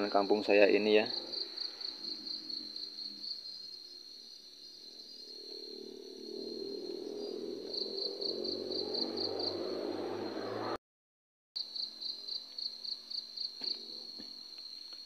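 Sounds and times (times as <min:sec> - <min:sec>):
crickets trilling: 0:00.0 - 0:10.6, 0:11.6 - 0:15.0
low noise: 0:04.9 - 0:10.8.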